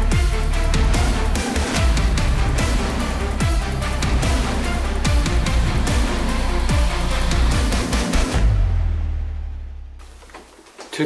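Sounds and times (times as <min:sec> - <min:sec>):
music with driving drum beat: 0:00.0 - 0:08.6.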